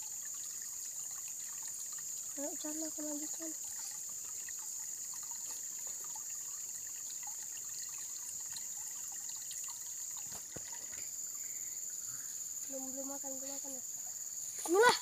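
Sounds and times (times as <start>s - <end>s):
faint ticks: 0.0s - 12.8s
high-pitched insect buzz: 10.2s - 15.0s.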